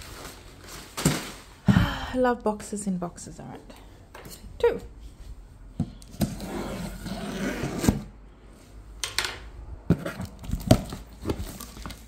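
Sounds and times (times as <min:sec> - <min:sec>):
cardboard boxes scraping: 0:05.8 - 0:08.2, 0:09.9 - 0:12.0.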